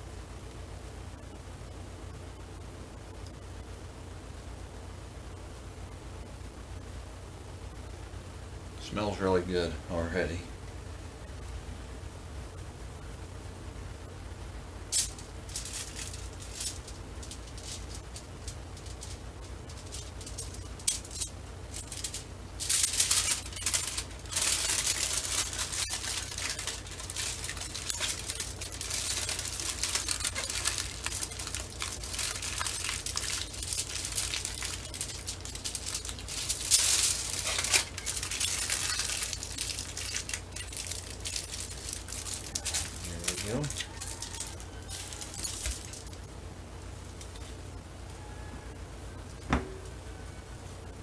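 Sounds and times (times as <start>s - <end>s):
steady low hum: 0.0s - 51.0s
aluminium foil crinkling: 14.9s - 46.3s.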